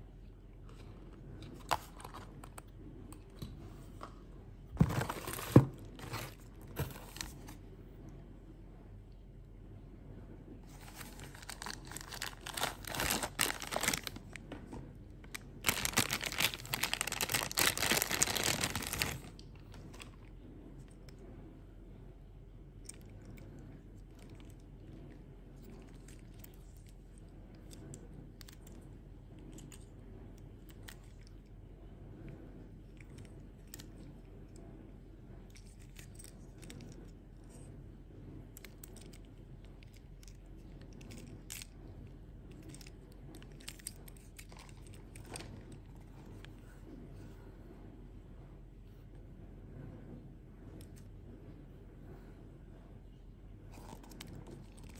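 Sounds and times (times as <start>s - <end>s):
cardboard tearing and crinkling: 4.8s - 7.5s, 10.7s - 14.3s, 15.6s - 19.3s.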